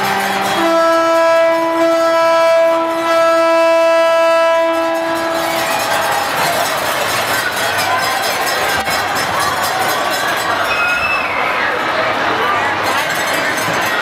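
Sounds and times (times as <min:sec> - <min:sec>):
horn long steady note: 0:00.0 - 0:06.5
crowd noise: 0:00.0 - 0:14.0.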